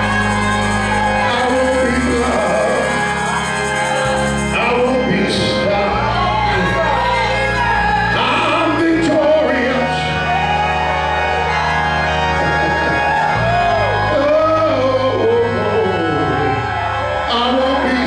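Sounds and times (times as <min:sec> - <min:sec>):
keyboard chords: 0:00.0 - 0:18.0
man singing into a microphone: 0:01.2 - 0:03.4, 0:04.5 - 0:10.3, 0:14.1 - 0:18.0.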